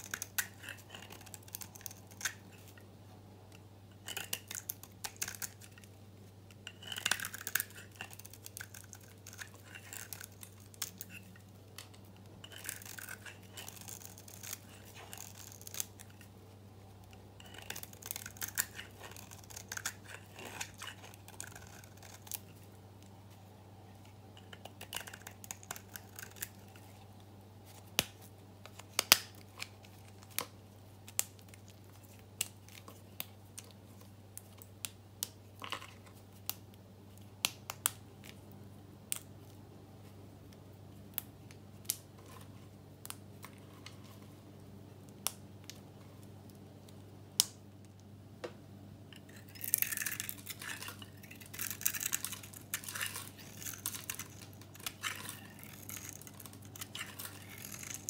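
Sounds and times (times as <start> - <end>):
knife shaving soap: 0.0 - 2.8, 4.0 - 5.9, 6.5 - 16.3, 17.0 - 22.6, 24.3 - 27.0, 49.2 - 58.0.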